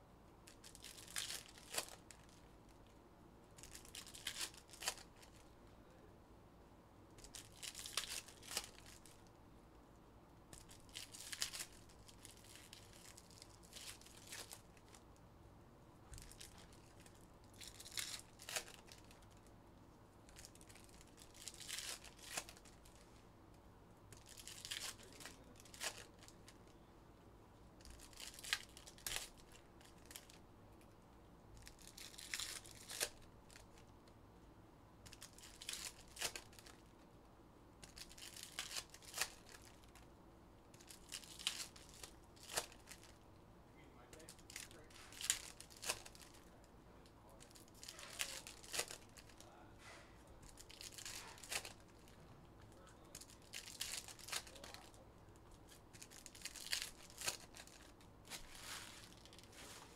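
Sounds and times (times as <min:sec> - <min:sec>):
foil packs tearing and crinkling: 0:00.6 - 0:02.1, 0:07.2 - 0:09.1, 0:17.6 - 0:19.2, 0:20.4 - 0:22.8, 0:24.2 - 0:26.3, 0:27.9 - 0:30.4, 0:31.6 - 0:33.6, 0:35.1 - 0:36.8, 0:37.8 - 0:40.0, 0:40.8 - 0:43.1, 0:44.2 - 0:46.4, 0:47.4 - 0:49.5, 0:50.5 - 0:51.9, 0:53.1 - 0:54.9, 0:55.9 - 0:59.5.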